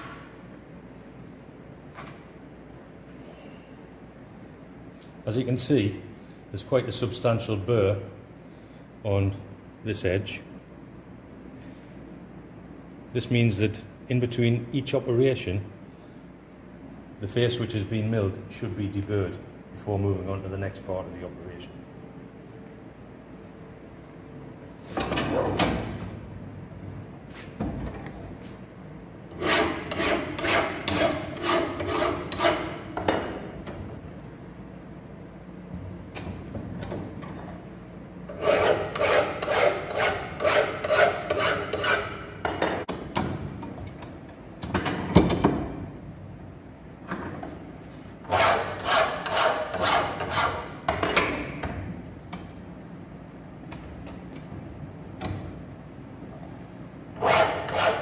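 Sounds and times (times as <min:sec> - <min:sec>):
hand file rasping on steel: 0:29.4 - 0:32.8, 0:38.3 - 0:42.2, 0:48.3 - 0:50.7, 0:57.2 - 0:58.0.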